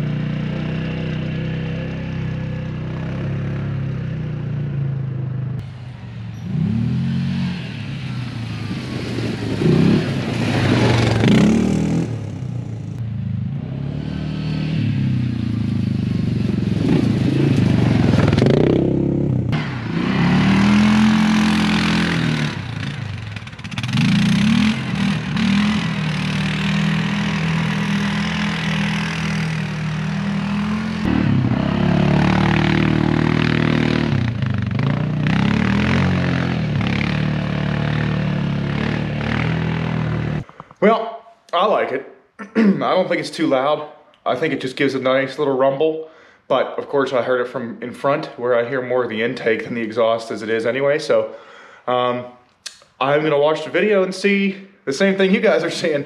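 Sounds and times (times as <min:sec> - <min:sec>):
atv engine revving: 0:00.0 - 0:40.7.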